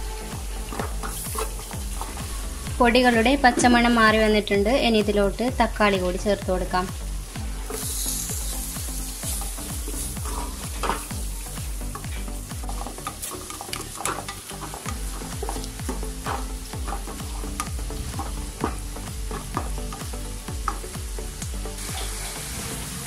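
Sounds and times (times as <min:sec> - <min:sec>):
masala sizzling in oil: 0:00.0 - 0:23.0
spatula scraping a pan: 0:00.3 - 0:02.4, 0:07.6 - 0:11.2, 0:11.9 - 0:20.1.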